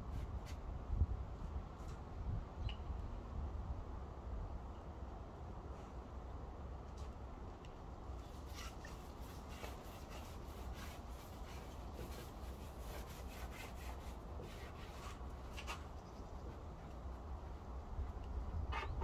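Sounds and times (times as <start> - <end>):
paintbrush strokes on wood: 8.3 - 16.9.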